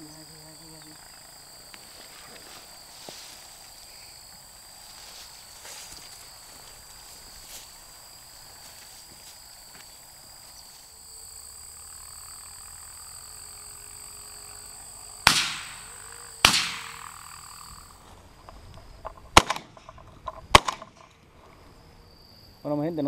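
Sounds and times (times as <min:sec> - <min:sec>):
shotgun shots: 0:15.2 - 0:17.2, 0:19.3 - 0:19.9, 0:20.5 - 0:21.1.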